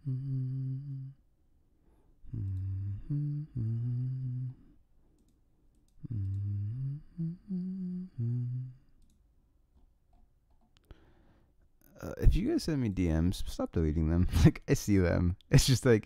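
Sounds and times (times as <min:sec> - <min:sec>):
man humming a tune: 0:00.0 - 0:01.2, 0:02.3 - 0:04.7, 0:06.0 - 0:08.9
faint clicks: 0:05.2 - 0:06.4, 0:09.0 - 0:09.2.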